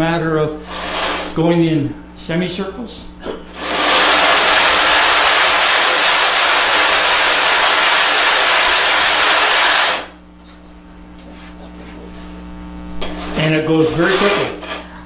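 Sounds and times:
stone grinding on glass: 13.2 - 14.9.

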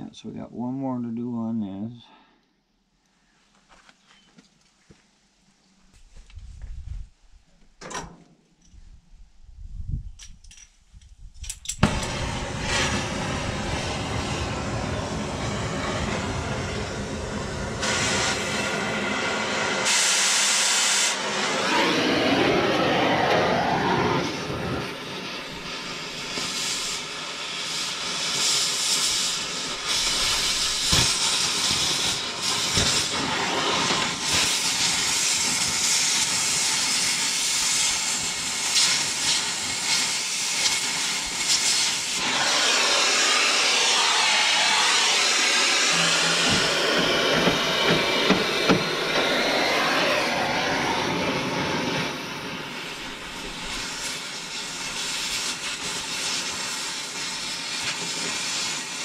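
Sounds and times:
cutting torch hissing: 11.8 - 59.0
sharp pops: 29.9 - 33.2.

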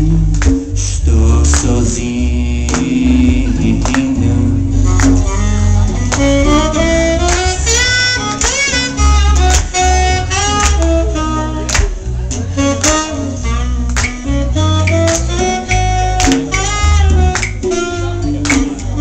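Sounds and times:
acoustic guitar: 0.0 - 19.0
bass guitar: 0.0 - 19.0
saxophone solo: 4.6 - 19.0.

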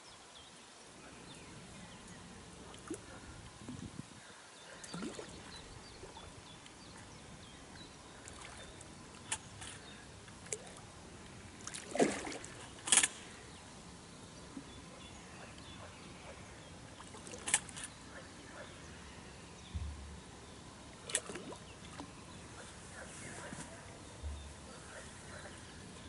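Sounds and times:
outdoor background noise: 0.0 - 26.0
fish splashing in water: 4.8 - 6.2, 11.6 - 13.2, 21.0 - 22.1.

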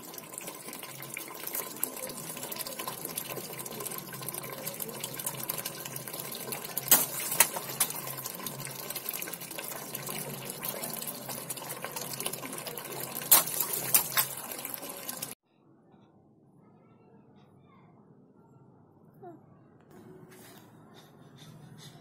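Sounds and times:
water running onto concrete: 0.0 - 15.4
sharp knocks or splashes: 6.8 - 8.2, 13.1 - 14.6.

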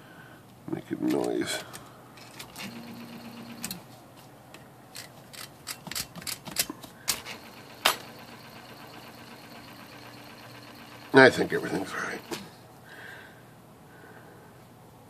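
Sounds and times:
typewriter motor humming: 1.1 - 3.9, 5.0 - 12.6
typewriter mechanism clicking: 4.9 - 8.1.

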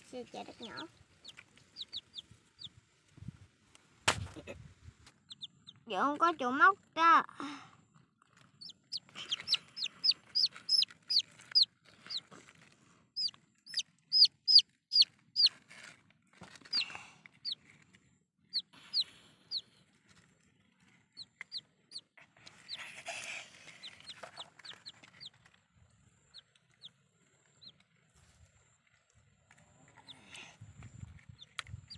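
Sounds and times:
bird chirping: 8.6 - 12.2, 13.2 - 15.5.

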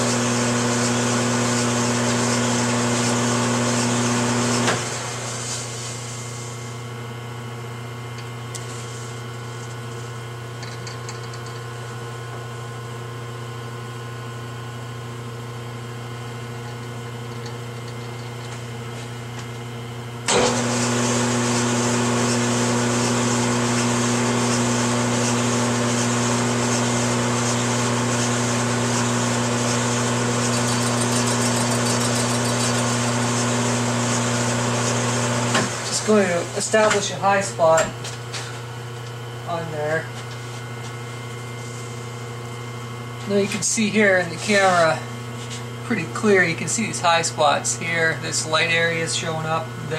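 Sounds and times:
metal lathe running: 0.0 - 5.1, 15.4 - 37.2.

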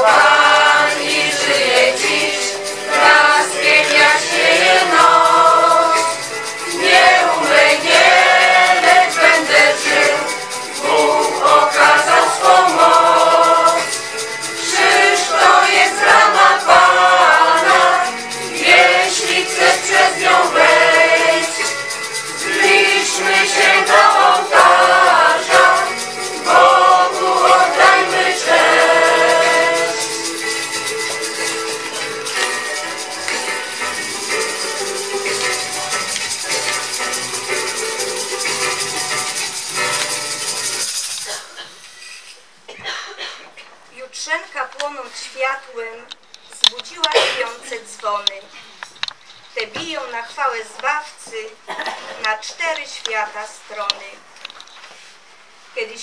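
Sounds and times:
mixed choir singing: 0.0 - 30.3.

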